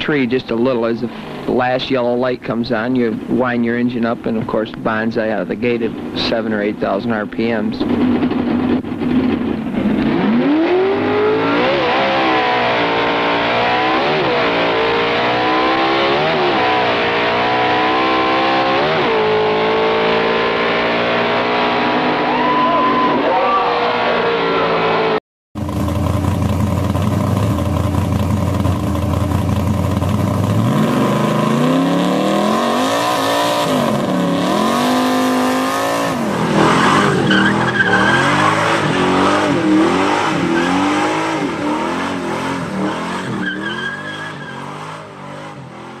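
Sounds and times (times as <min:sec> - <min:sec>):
car engine revving: 0:04.0 - 0:46.0
tyre squealing: 0:35.2 - 0:41.6, 0:42.6 - 0:45.1.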